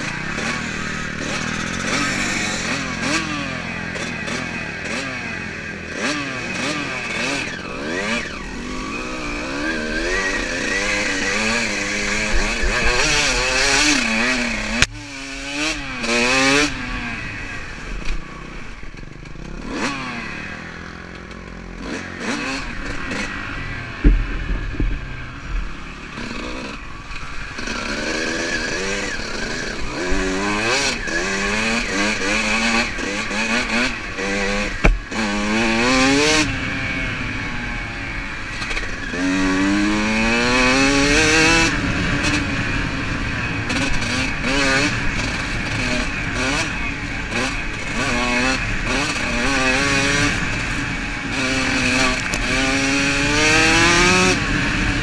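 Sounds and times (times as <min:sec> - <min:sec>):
dirt bike engine revving: 0:00.0 - 0:55.0
sharp knocks: 0:24.0 - 0:25.7, 0:34.8 - 0:35.2.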